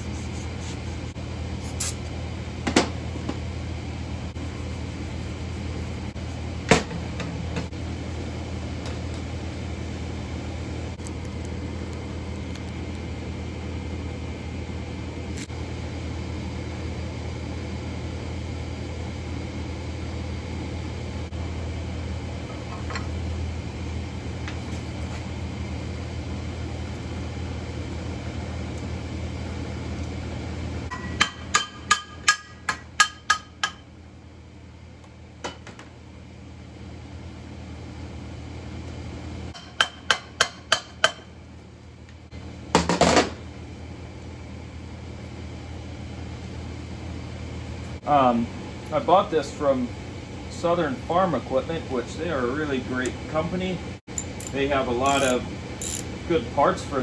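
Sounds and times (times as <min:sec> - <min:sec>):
steady low hum: 0:00.0 - 0:57.0
hammer striking metal: 0:30.9 - 0:33.8, 0:39.6 - 0:41.3.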